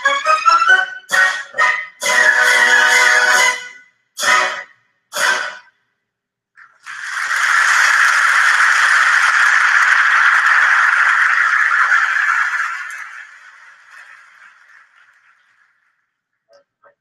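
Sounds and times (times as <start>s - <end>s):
orchestra chords: 0.0s - 5.6s
audience applause: 6.7s - 16.2s.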